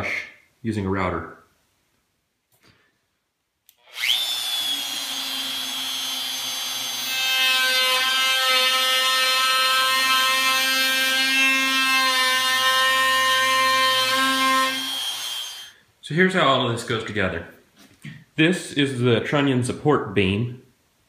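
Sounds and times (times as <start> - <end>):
router cutting plywood edge: 3.8 - 15.7
router motor whining: 3.8 - 15.7.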